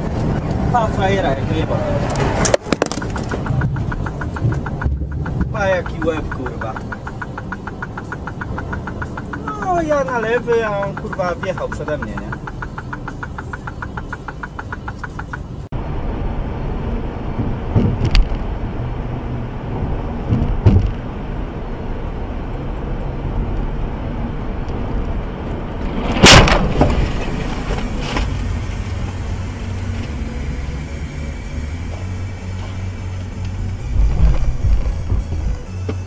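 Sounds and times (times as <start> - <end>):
road and wind noise in car: 0.0 - 36.0
thumps and sharp bang: 33.9 - 36.0.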